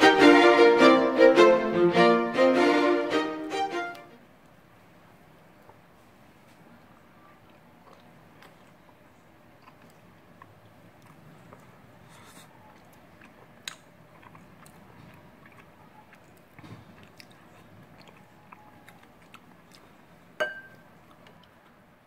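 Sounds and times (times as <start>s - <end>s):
soft chewing: 5.4s - 21.8s
spoon clinking against bowl: 20.4s - 20.8s.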